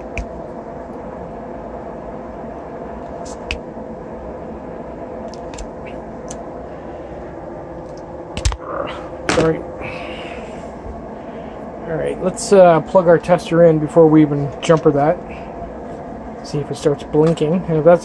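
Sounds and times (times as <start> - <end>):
workshop hum: 0.0 - 18.0
pliers clicking on wire: 5.3 - 6.4.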